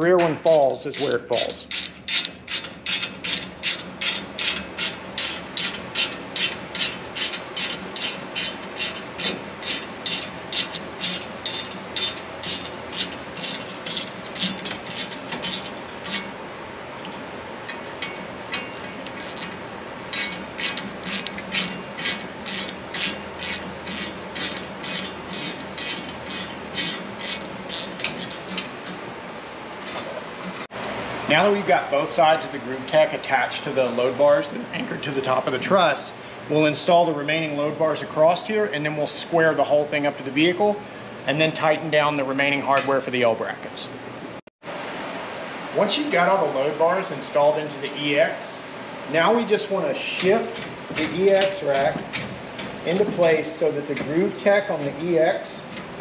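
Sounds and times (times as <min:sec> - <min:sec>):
ratchet pawl clicking: 0:01.0 - 0:16.3, 0:18.0 - 0:29.0.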